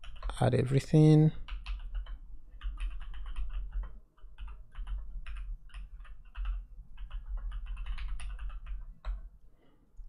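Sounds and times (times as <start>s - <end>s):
keyboard typing clicks: 1.4s - 9.3s.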